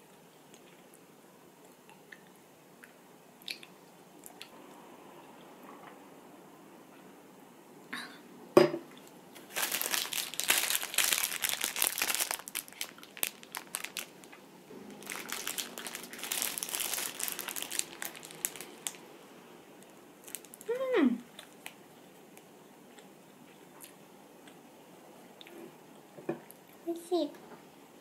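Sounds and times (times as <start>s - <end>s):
plastic wrapper crinkling: 9.4s - 19.0s, 20.2s - 20.8s.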